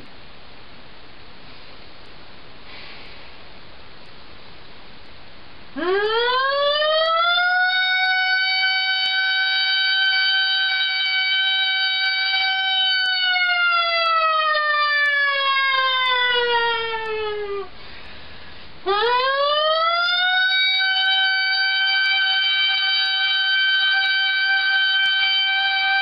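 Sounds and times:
man imitating a siren: 5.8s - 17.8s, 18.9s - 26.0s.

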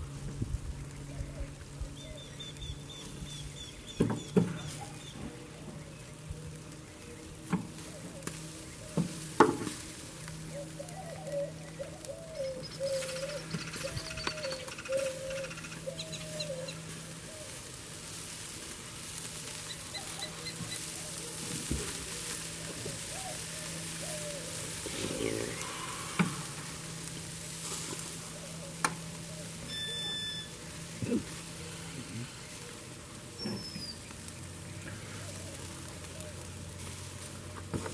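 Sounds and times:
steaks sizzling: 7.7s - 37.9s
low wavering call: 10.5s - 17.5s, 23.0s - 27.4s, 28.1s - 32.0s.

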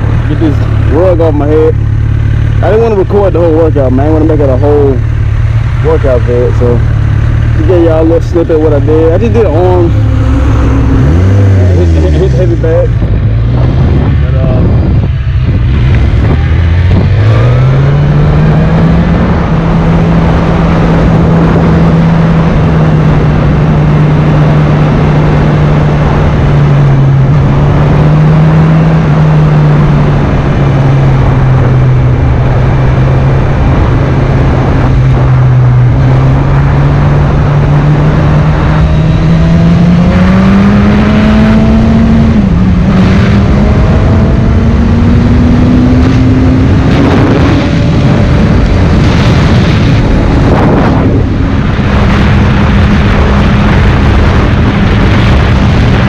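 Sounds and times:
motorcycle engine revving: 0.0s - 56.0s
wind and road noise: 0.0s - 56.0s.

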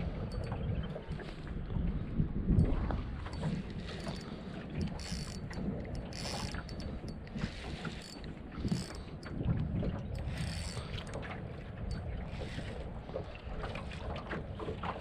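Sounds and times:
wind buffeting microphone: 0.0s - 15.0s
fishing reel winding: 3.5s - 9.3s, 10.1s - 11.2s.

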